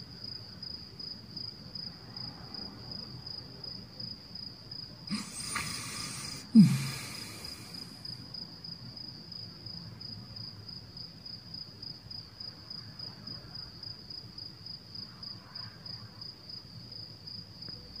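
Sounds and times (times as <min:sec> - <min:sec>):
insect chirping trill: 0:05.1 - 0:08.2.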